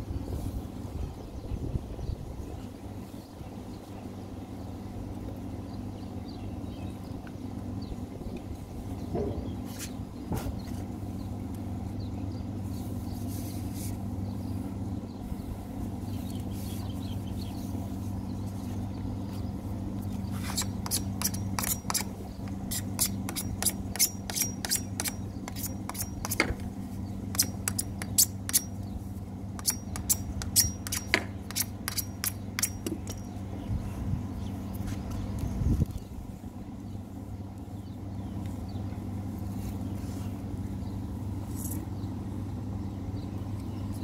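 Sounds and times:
steady low hum: 0.0s - 44.0s
hacksaw cutting plastic pipe: 20.5s - 26.6s, 27.3s - 28.7s, 29.6s - 33.2s.

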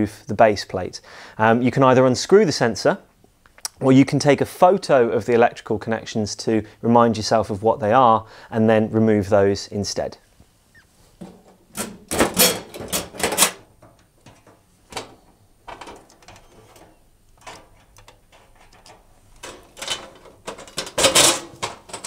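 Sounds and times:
screwdriver on sheet steel clattering: 11.2s - 22.0s.

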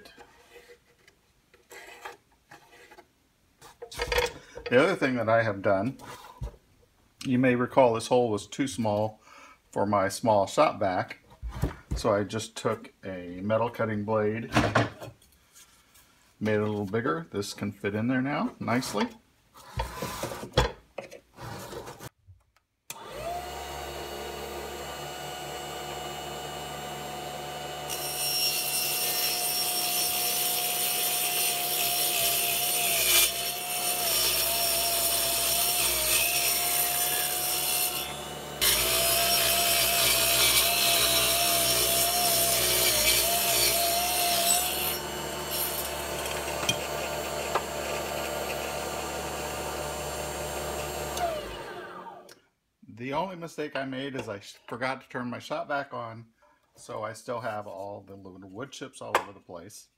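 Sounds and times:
saw cutting wooden board: 22.9s - 52.3s
table saw whining: 22.9s - 52.4s.

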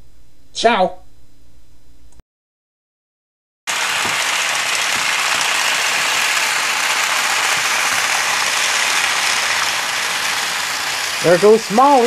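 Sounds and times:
toy trains whirring and rattling: 3.7s - 12.0s.

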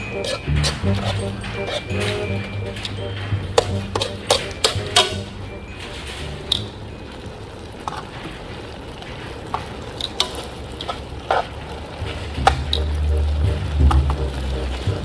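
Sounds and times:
utensil scraping a pan: 0.0s - 2.8s.

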